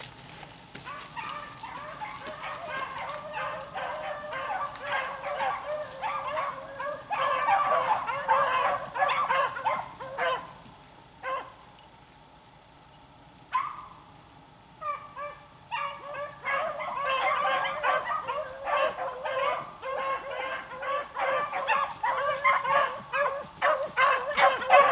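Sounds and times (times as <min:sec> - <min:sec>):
beagles baying: 0:00.0 - 0:11.9, 0:13.5 - 0:24.9.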